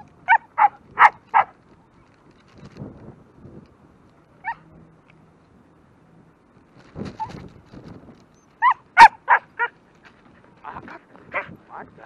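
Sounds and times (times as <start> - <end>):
dog barking: 0.3 - 1.5, 8.6 - 9.7.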